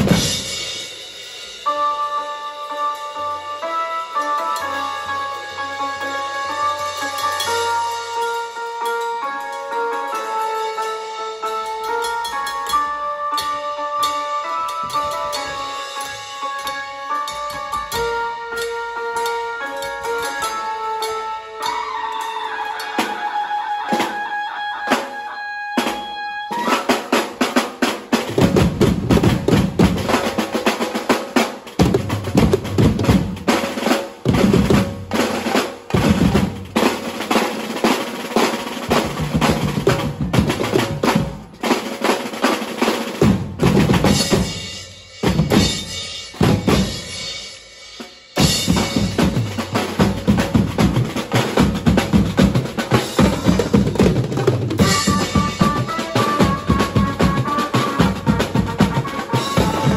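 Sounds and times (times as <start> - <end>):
drum section playing fast rhythm: 0.0 - 59.9
held melodic note: 1.6 - 27.4, 54.7 - 59.9.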